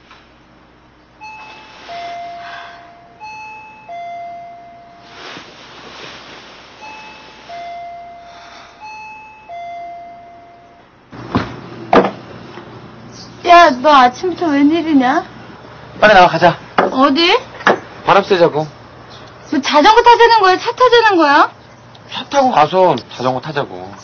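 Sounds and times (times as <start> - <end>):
two-tone doorbell chime: 1.2 - 5.2, 6.8 - 11.0
loud thumps: 11.2 - 12.3.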